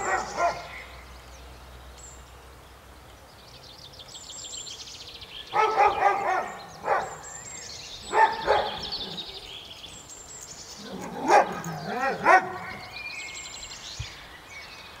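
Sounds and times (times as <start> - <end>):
dog barking: 0.0 - 0.8, 5.5 - 7.3, 8.1 - 9.0, 10.9 - 12.9
small birds twittering: 0.0 - 15.0.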